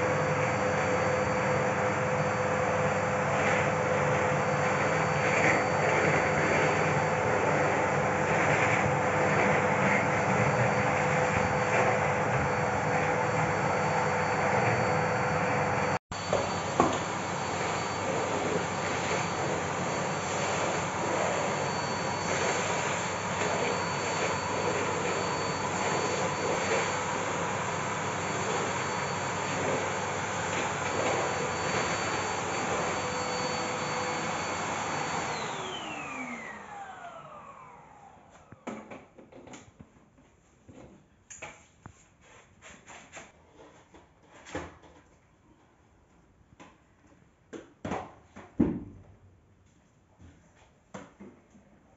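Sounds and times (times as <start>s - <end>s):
vacuum cleaner running: 0.0s - 39.4s.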